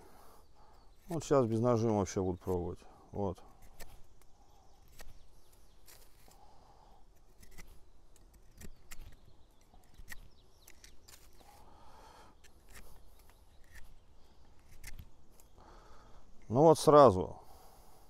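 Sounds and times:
knife shaving a wooden stick: 3.4s - 11.7s, 12.4s - 15.5s.

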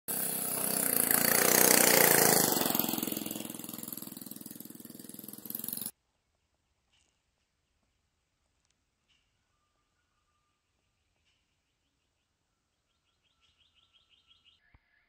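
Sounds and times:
atv engine driving past: 0.1s - 5.9s.

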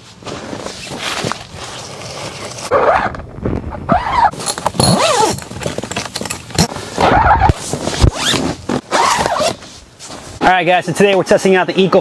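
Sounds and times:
zipper rasping: 1.6s - 3.2s, 3.9s - 5.8s, 6.6s - 9.6s
nylon fabric rustling: 4.0s - 5.8s, 6.6s - 10.4s.

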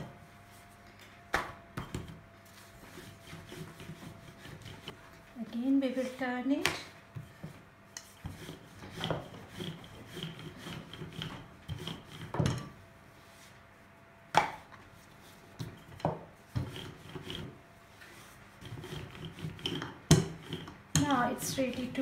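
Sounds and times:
rolling pin rubbing on dough: 2.4s - 5.2s, 7.2s - 12.4s, 14.9s - 21.3s.

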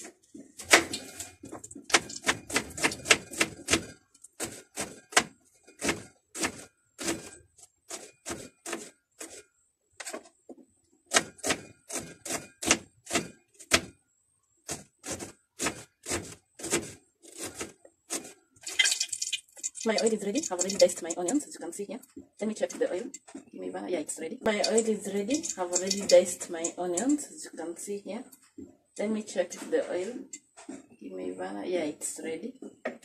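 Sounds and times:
knife chopping onions on board: 1.9s - 9.4s, 11.1s - 14.0s, 14.6s - 18.4s.

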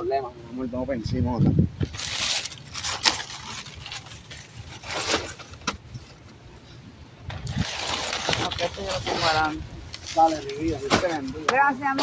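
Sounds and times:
plastic wrap rustling: 1.8s - 6.3s, 7.3s - 11.4s.

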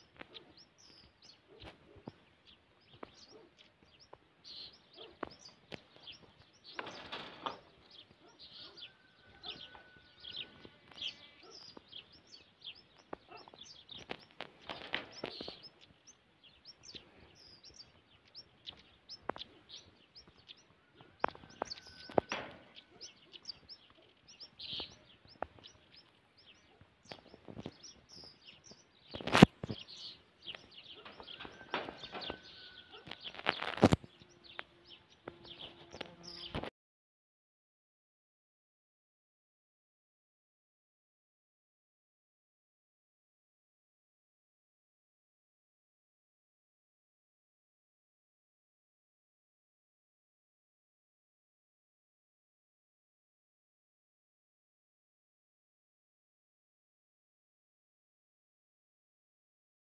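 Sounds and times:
small birds chirping: 0.0s - 36.7s
rustling: 29.1s - 34.2s.

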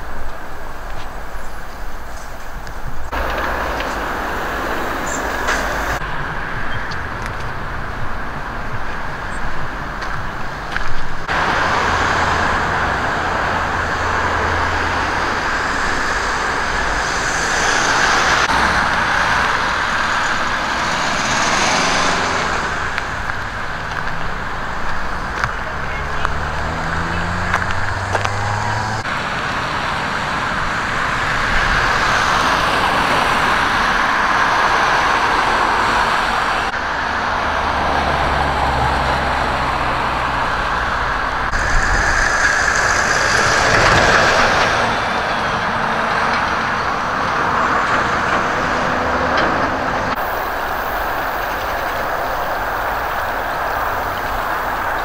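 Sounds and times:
vehicles passing: 0.0s - 55.0s
engine pitch rising: 11.2s - 29.6s, 31.6s - 55.0s.

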